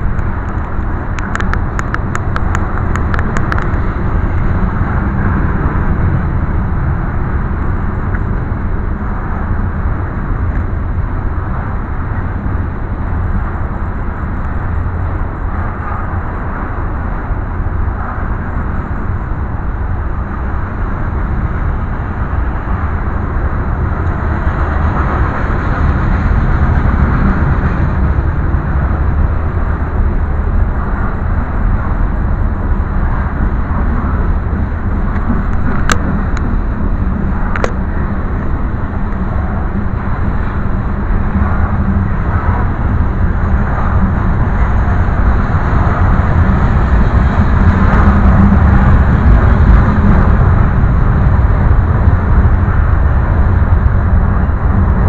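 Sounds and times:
sharp rail clicks: 0:00.0 - 0:04.6
train wheels rumbling on rails: 0:00.0 - 0:55.0.

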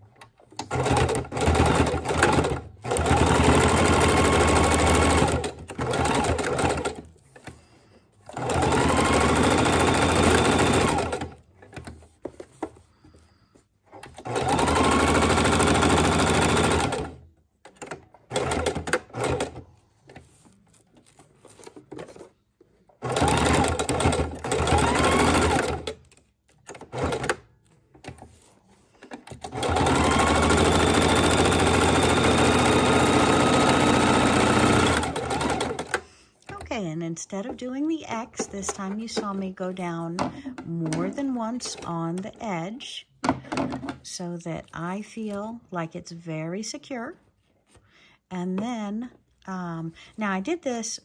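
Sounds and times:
sewing machine stitching: 0:00.0 - 0:07.6, 0:08.2 - 0:12.4, 0:13.9 - 0:22.3, 0:22.9 - 0:36.8.

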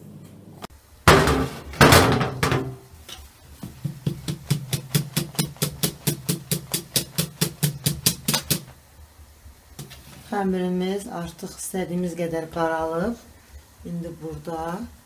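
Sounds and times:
whisk knocking against metal bowl: 0:03.6 - 0:08.7.

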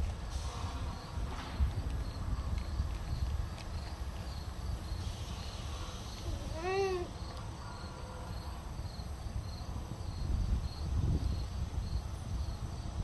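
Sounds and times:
wind rumble on microphone: 0:00.0 - 0:04.9, 0:09.2 - 0:13.0
insects chirping: 0:00.7 - 0:13.0.

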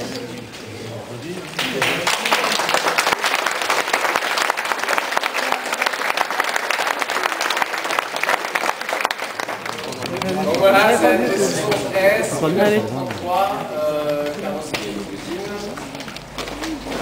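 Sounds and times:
crowd applauding: 0:01.6 - 0:14.5.

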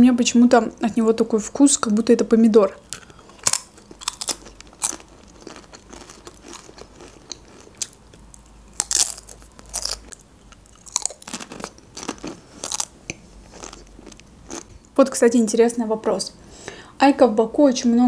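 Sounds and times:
crunchy chips being chewed: 0:02.8 - 0:14.7.

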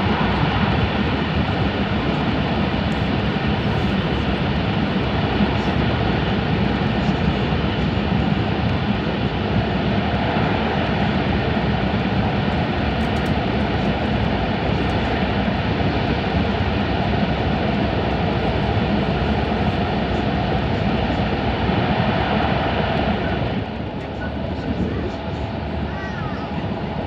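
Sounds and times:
train rushing through tunnel: 0:00.0 - 0:27.0.

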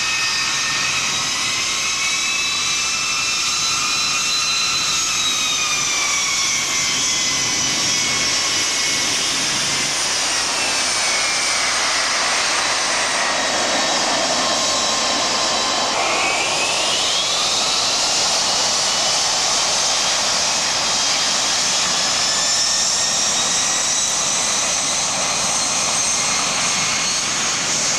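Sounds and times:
jet engines whining: 0:00.0 - 0:27.9.

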